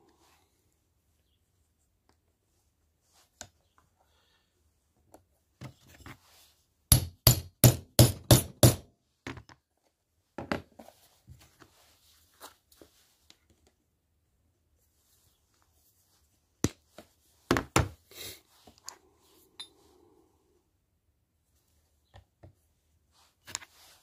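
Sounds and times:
hammer striking rivet setter: 6.9 - 8.8
tools knocking and handling: 10.4 - 10.9.

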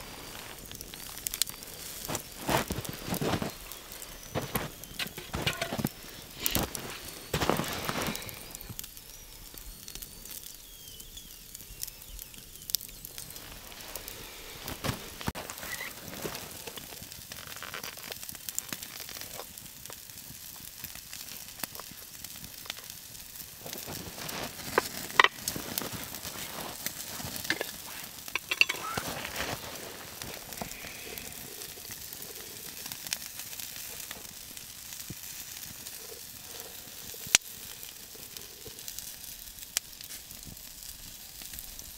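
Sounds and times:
embers crackling: 0.0 - 41.9
meat sizzling on grill: 0.0 - 41.9.

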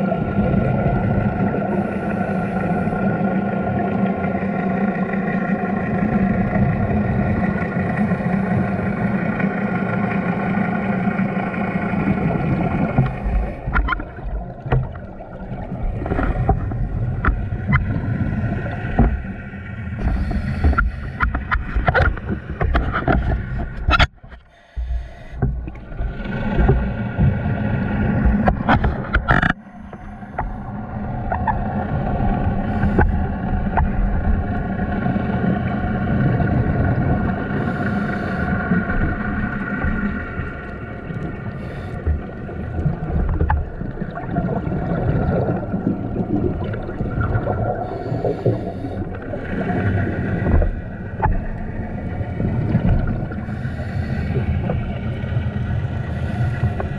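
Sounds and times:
boat engine humming underwater: 0.0 - 56.9
low underwater rumbling: 0.0 - 56.9
sharp clicks and knocks: 20.6 - 25.9, 28.2 - 30.6.

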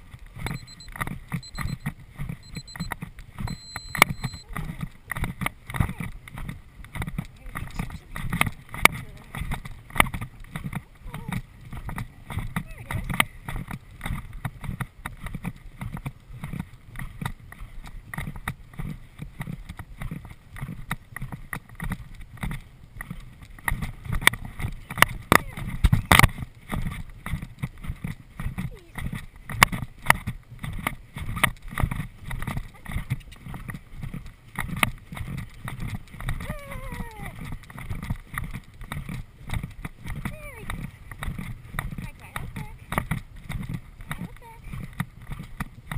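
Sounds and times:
horse hoofbeats galloping on grass: 0.0 - 45.9
wind rumbling on microphone: 0.0 - 45.9
person calling out: 36.4 - 37.4.

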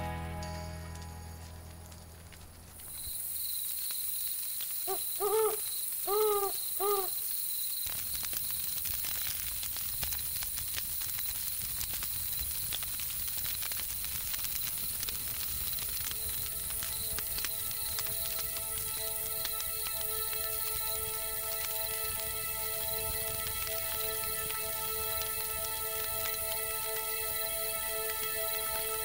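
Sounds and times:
campfire crackling: 0.0 - 29.0
crickets chirring: 2.8 - 29.0
owl hooting: 4.9 - 7.2.

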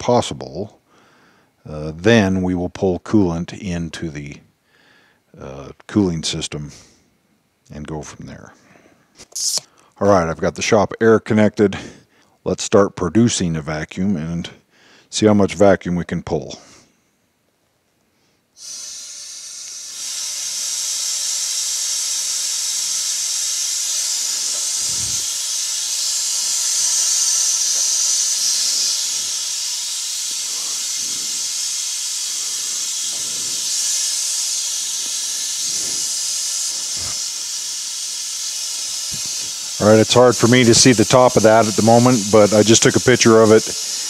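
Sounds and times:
compressed air hissing: 9.2 - 9.8, 18.4 - 44.0.

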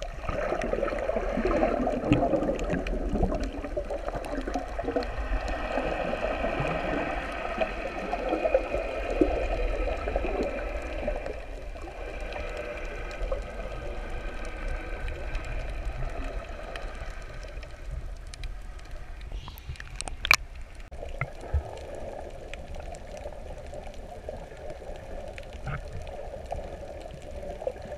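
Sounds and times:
water gurgling and rushing: 0.0 - 27.9.

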